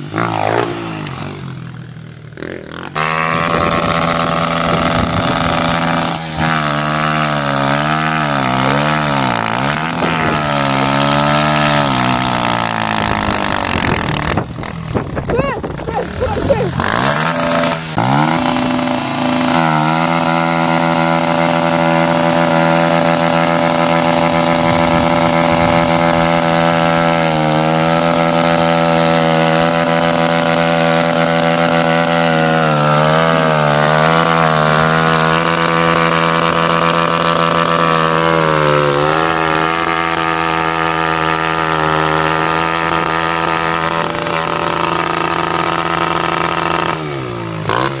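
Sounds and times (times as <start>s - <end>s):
dirt bike engine at rev limiter: 0.0s - 48.0s
rear wheel spinning in dirt: 0.0s - 48.0s.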